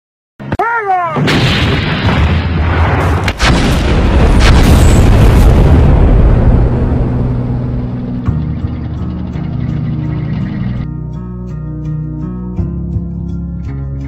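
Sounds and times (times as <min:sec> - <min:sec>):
artillery gun blast: 0:01.2 - 0:08.1
long rolling rumble: 0:03.8 - 0:10.8.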